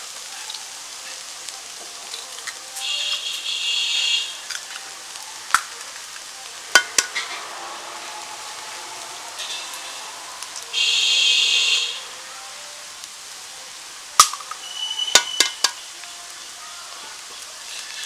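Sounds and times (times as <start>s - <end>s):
high buzzing hiss: 0.0s - 18.0s
eggshell tapping on steel bowl: 6.8s - 7.2s, 15.2s - 15.8s.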